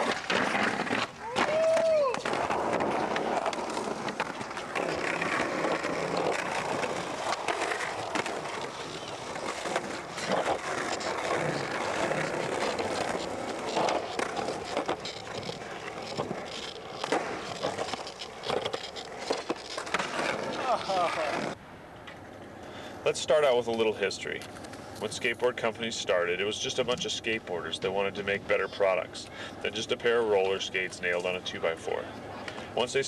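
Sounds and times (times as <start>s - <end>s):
skateboard clacking on ground: 0.0s - 22.5s
skateboard wheels rolling on asphalt: 0.0s - 33.0s.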